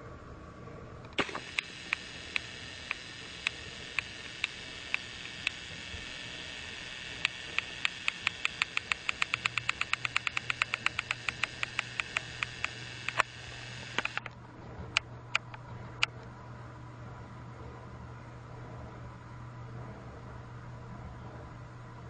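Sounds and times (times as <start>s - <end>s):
low motor hum: 0.0s - 22.0s
toy train clicking: 1.1s - 14.3s.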